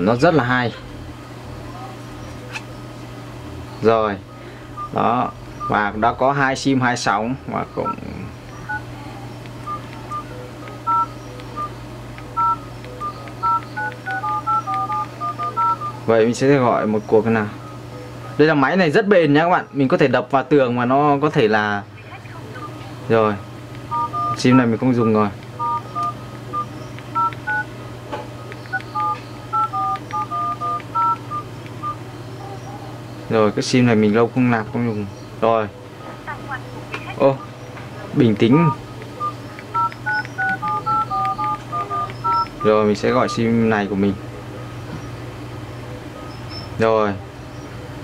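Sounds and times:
low steady hum: 0.0s - 48.0s
phone keypad beeps: 5.6s - 5.8s, 7.7s - 8.9s, 9.6s - 16.0s, 23.9s - 27.7s, 28.6s - 32.0s, 38.6s - 43.4s.

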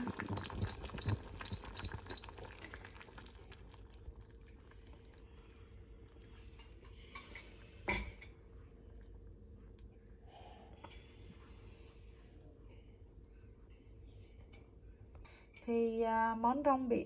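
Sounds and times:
soup simmering with bubbling: 0.0s - 7.8s
faint steady hum: 0.0s - 17.0s.

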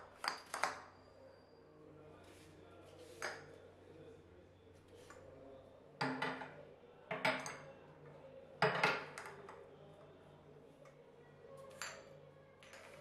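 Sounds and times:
glass jars knocking and clinking: 0.0s - 0.9s, 7.1s - 7.7s, 11.7s - 13.0s.

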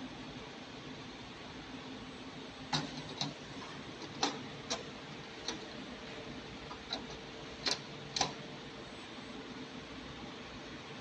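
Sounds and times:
steady low hum: 0.0s - 11.0s
circuit boards clicking into tray: 2.7s - 3.4s, 6.7s - 8.4s.

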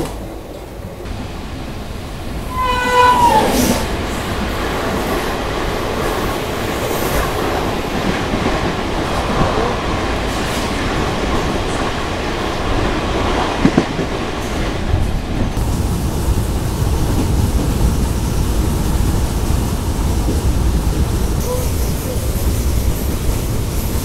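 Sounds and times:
train coaches rumbling and clattering: 0.0s - 24.0s
train horn: 2.4s - 3.9s.

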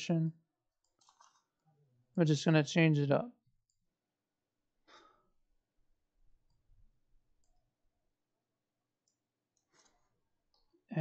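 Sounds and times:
computer mouse clicks: 0.8s - 1.6s, 9.0s - 10.8s.

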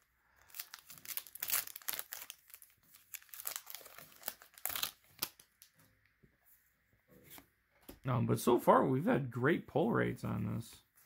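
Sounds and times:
foil wrapper tearing and crinkling: 0.4s - 5.6s.

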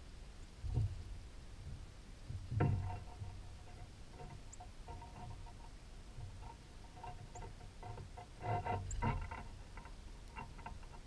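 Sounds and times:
scraping and creaking: 2.4s - 11.0s.

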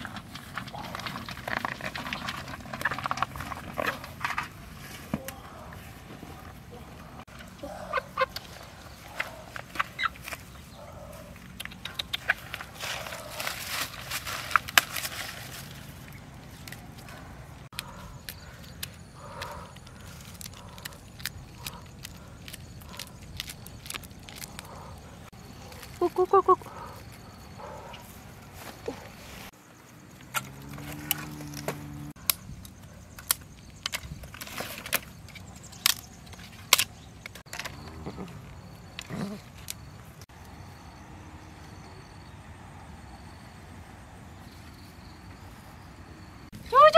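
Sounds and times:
dry corn husks crackling: 0.0s - 27.4s, 28.0s - 40.2s
sharp snaps: 11.4s - 12.6s.

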